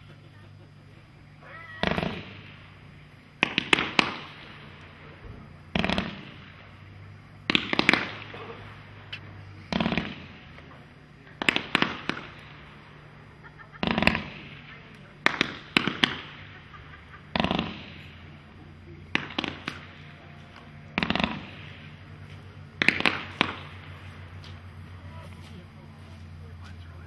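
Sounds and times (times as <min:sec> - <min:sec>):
firework bangs: 0:00.0 - 0:27.0
firework hiss: 0:00.8 - 0:27.0.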